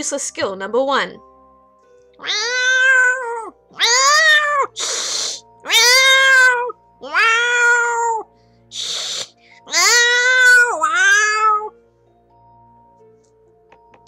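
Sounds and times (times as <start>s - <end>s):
woman hissing: 4.6s - 5.5s, 8.7s - 9.4s
woman imitating cat meows: 9.7s - 11.7s.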